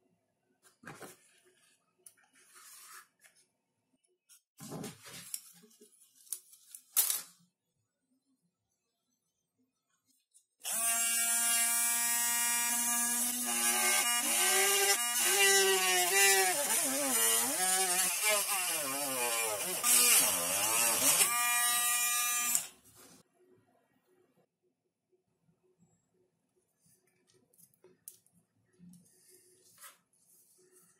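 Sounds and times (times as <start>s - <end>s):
rotary tool whining into wood: 10.7s - 22.7s.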